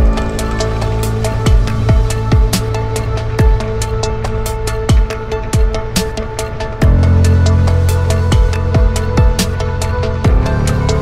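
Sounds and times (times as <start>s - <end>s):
deep kick drums: 0.0s - 0.6s, 1.4s - 3.8s, 4.9s - 5.9s, 6.8s - 7.5s, 8.2s - 10.6s.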